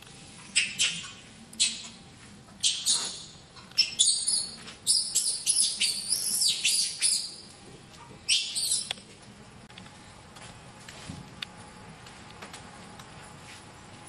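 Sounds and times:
baby monkey squealing: 2.6 - 7.3, 8.3 - 8.9.

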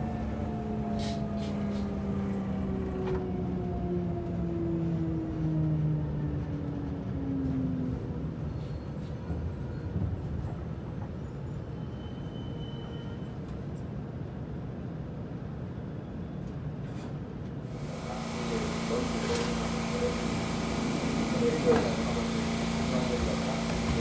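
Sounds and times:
train car rumble: 0.0 - 15.4, 16.5 - 24.0
train motor whine: 17.7 - 24.0.

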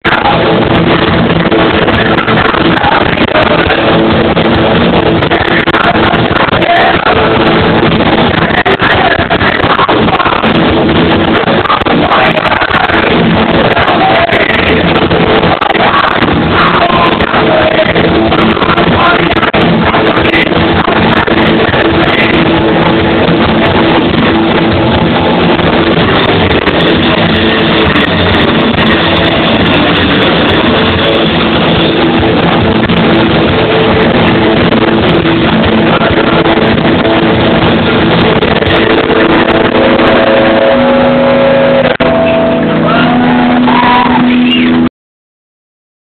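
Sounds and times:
person singing: 0.0 - 23.3
drums: 0.0 - 44.9
electric guitars: 0.0 - 44.9.

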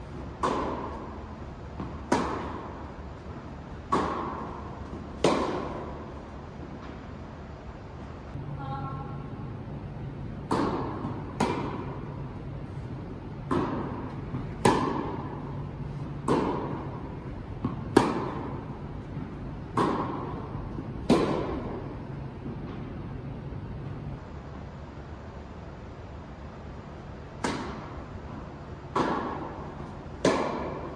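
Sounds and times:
tennis balls bouncing on court: 0.0 - 7.0, 10.0 - 24.1, 27.4 - 30.9
tennis balls hit by rackets: 0.0 - 7.1, 10.0 - 23.9, 27.3 - 30.9
low steady hum: 0.0 - 30.9.

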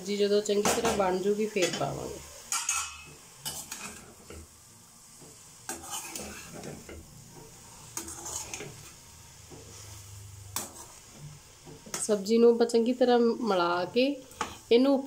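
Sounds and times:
soft sizzle: 0.0 - 15.0
metal spatula scraping pan: 0.7 - 4.4, 5.7 - 12.3.

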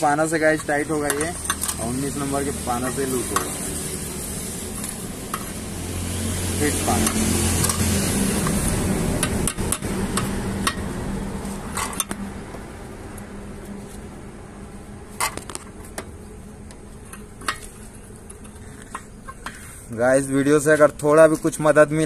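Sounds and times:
steady background hum: 0.0 - 22.0
spanner clinking on metal: 0.2 - 4.0, 6.6 - 8.6.

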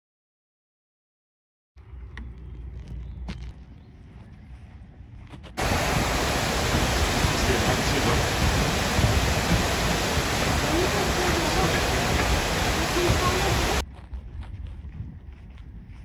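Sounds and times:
waterfall rushing: 5.6 - 13.8.

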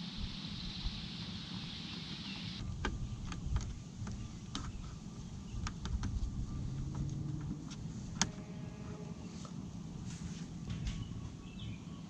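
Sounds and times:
steady low rumble: 0.0 - 8.9.

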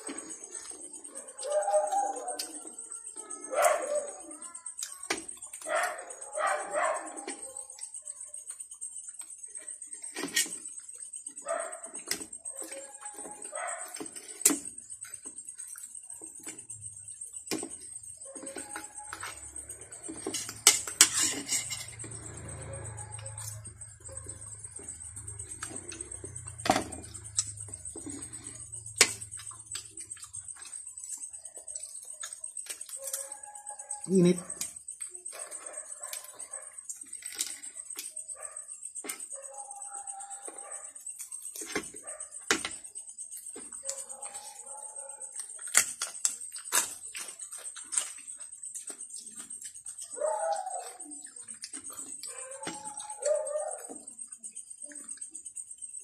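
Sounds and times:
crunchy chewing: 0.0 - 56.0.

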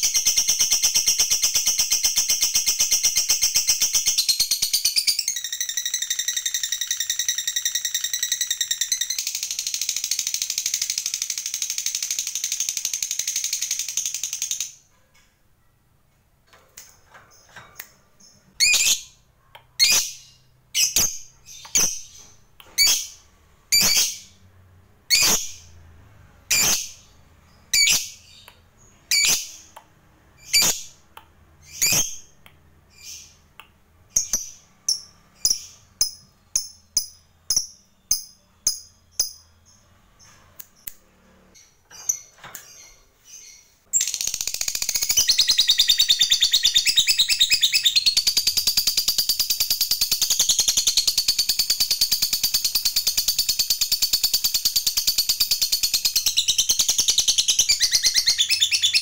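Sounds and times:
bird shrill chirps: 0.0 - 14.6, 41.6 - 59.0.

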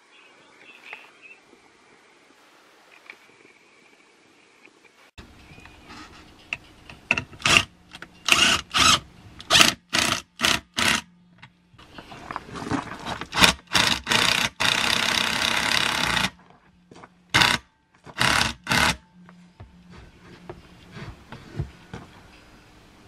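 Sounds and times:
impact wrench bursts: 7.4 - 11.1, 13.3 - 16.4, 17.3 - 19.0.

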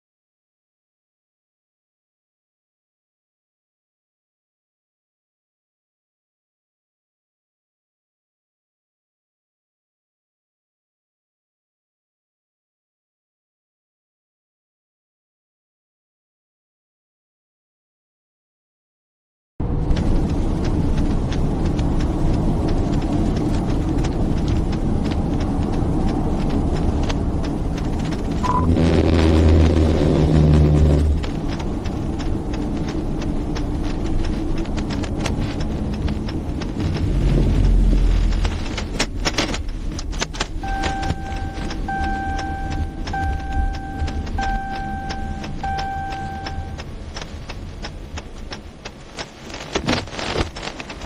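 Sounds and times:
car engine and road rumble: 19.6 - 51.0
in-car electronic chime beeping: 28.4 - 28.9, 40.6 - 46.8.

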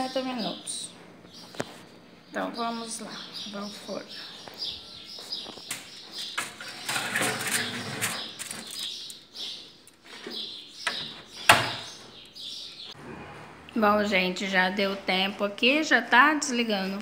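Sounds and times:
foil tray rustling and scraping: 6.3 - 9.1
oven glass door clacking shut: 10.9 - 11.9.

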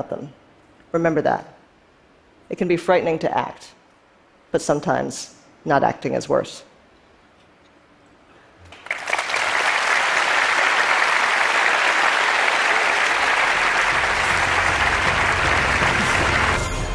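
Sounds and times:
audience applauding: 8.7 - 16.9.

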